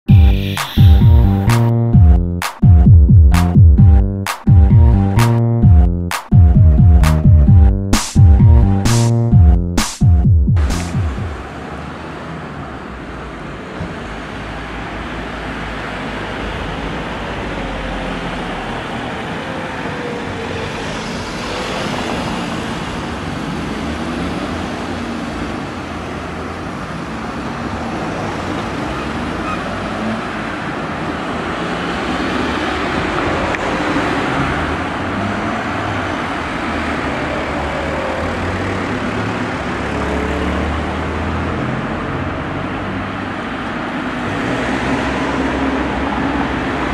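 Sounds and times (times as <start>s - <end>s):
cars driving past: 10.6s - 46.9s.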